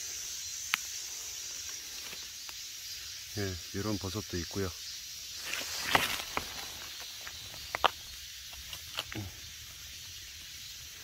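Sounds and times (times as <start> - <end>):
faint hiss: 0.0 - 11.0
dry leaves crackling underfoot: 5.4 - 9.7.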